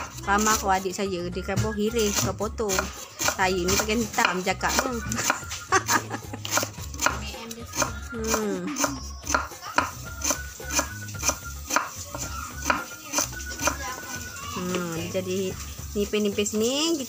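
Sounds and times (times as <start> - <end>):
knife chopping on wooden board: 0.0 - 0.7, 1.5 - 14.1.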